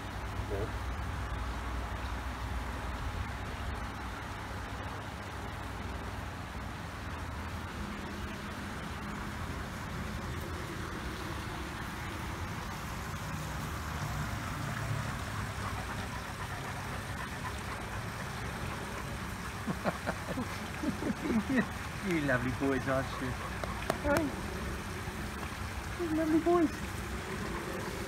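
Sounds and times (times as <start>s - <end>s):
man talking: 21.5s - 23.4s.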